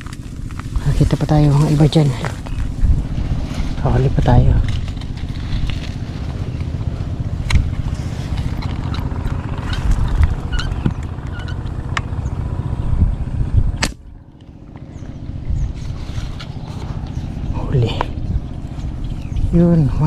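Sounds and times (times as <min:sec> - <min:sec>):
wind buffeting microphone: 0:00.0 - 0:20.0
sharp snap: 0:13.8 - 0:14.0.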